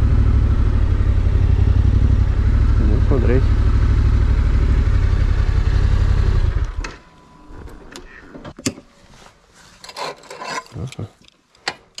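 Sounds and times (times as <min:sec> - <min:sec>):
motorcycle engine idling: 0:00.0 - 0:06.8.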